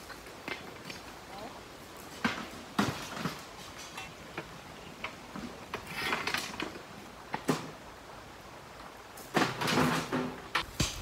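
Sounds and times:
pick and shovel striking stones: 9.3 - 11.0.

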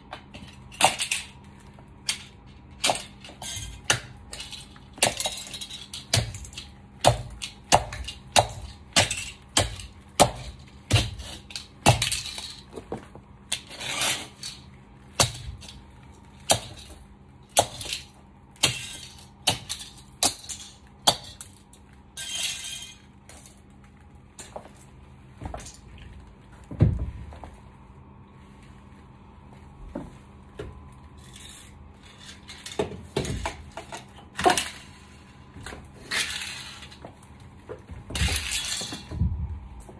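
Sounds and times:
heels clicking on tiled floor: 29.4 - 31.3
plastic toy cars crunching: 38.1 - 39.4.

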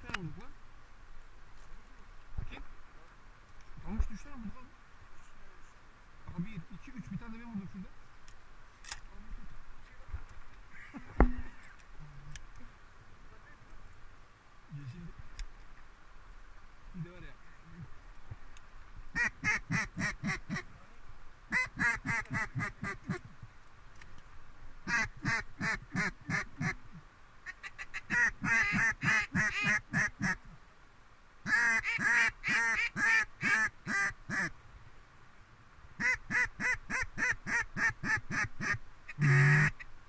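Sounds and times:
duck call quacks: 19.1 - 20.7, 21.5 - 23.3, 24.8 - 30.4, 31.4 - 34.5, 36.0 - 39.9.

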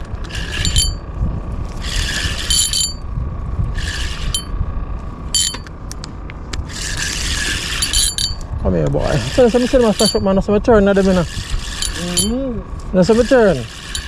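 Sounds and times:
fishing reel gears whirring: 0.0 - 5.7, 6.6 - 14.0
reel clicks: 13.1 - 14.0.

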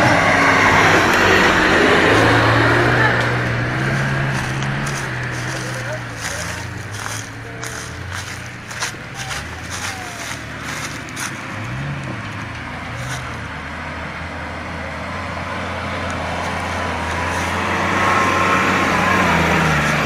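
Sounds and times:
car engine running at low revs: 0.0 - 20.0.

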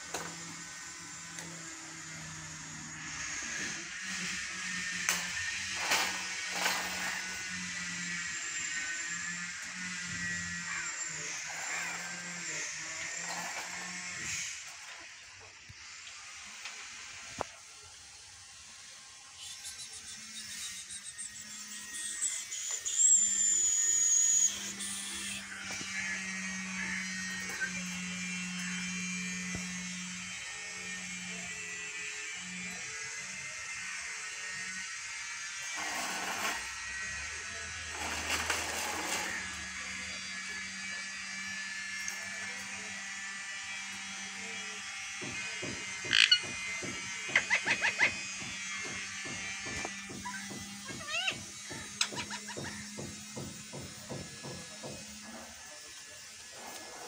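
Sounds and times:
parakeet squawking and chirping: 46.1 - 46.4, 47.4 - 48.1.

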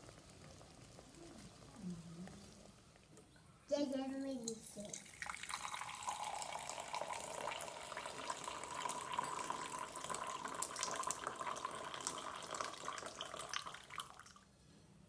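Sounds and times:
water running and splashing: 4.7 - 14.3.

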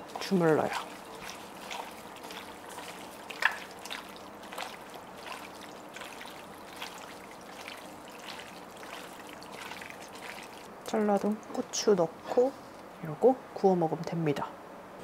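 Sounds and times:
wet squelching of kneaded meat: 0.0 - 11.3.

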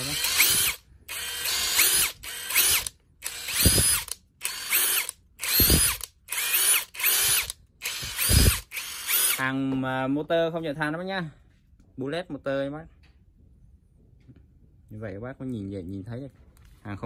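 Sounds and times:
impact driver motor whine: 0.0 - 9.4.

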